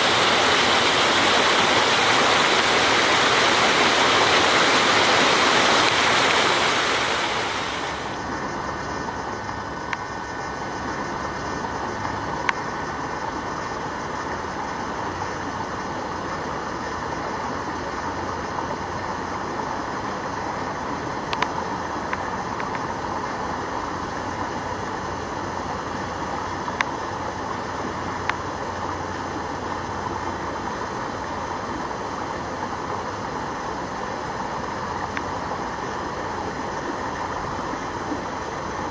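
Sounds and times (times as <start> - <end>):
water pouring from a channel: 0.0 - 8.2
faint clicks: 21.3 - 22.9, 28.2 - 28.4.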